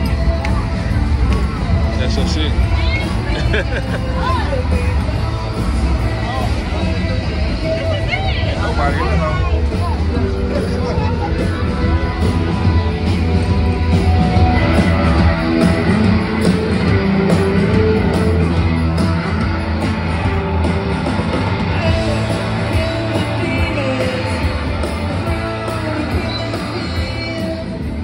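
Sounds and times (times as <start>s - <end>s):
electric guitars: 0.0s - 28.0s
person singing: 21.3s - 28.0s.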